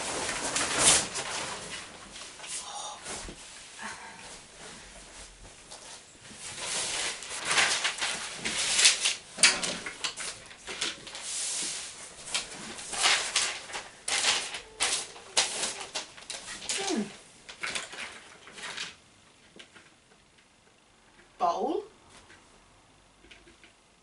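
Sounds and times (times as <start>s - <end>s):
plastic sheet rustling: 0.0s - 19.0s.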